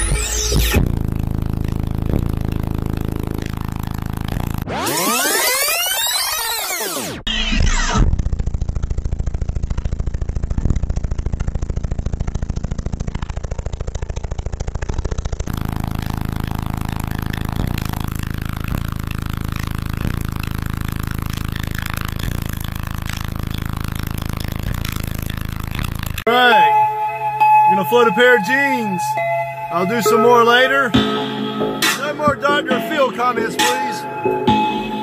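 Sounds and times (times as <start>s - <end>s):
loud subwoofer bass: 0.0s - 5.7s, 7.2s - 35.0s.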